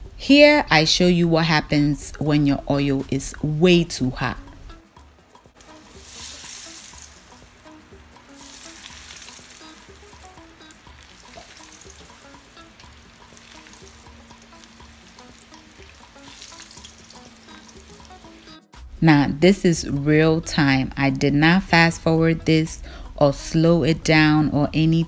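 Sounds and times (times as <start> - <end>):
oil sizzling: 1.5 - 21.0
spoon stirring in oil: 5.6 - 18.5.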